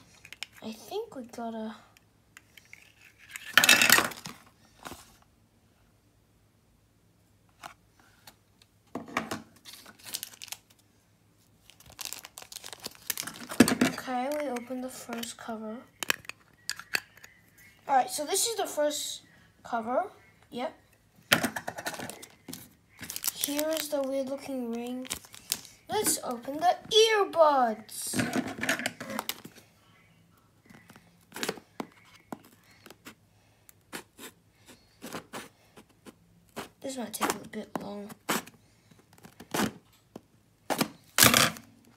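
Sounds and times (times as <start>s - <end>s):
packaging clicks and crinkles: 9.7s - 10.8s, 11.6s - 15.3s, 21.7s - 25.8s.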